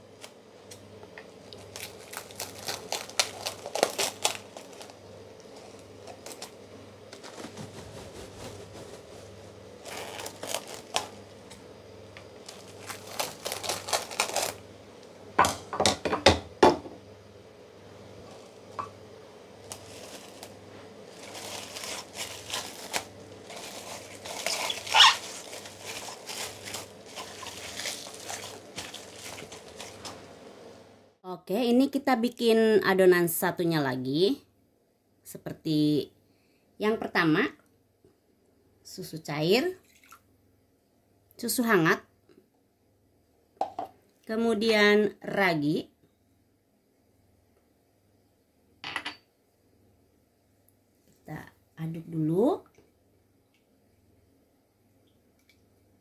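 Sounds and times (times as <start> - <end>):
cling film crinkling: 0.1 - 11.6, 12.3 - 14.6, 19.6 - 30.3.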